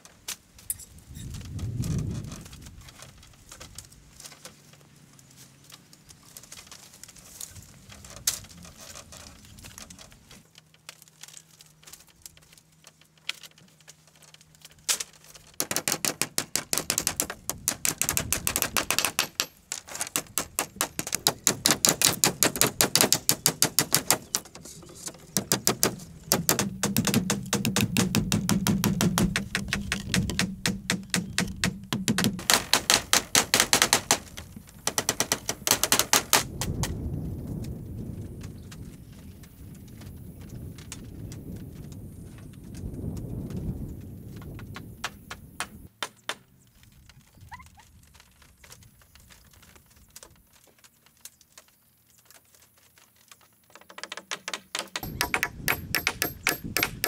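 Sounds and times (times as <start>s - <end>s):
hand tool striking bamboo: 14.9s - 36.5s, 53.8s - 57.0s.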